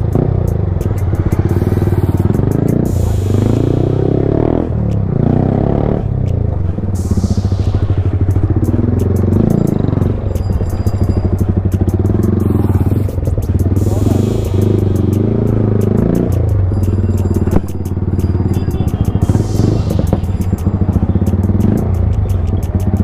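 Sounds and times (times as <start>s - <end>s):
motorcycle engine revving: 0.0s - 23.0s
music: 0.0s - 23.0s.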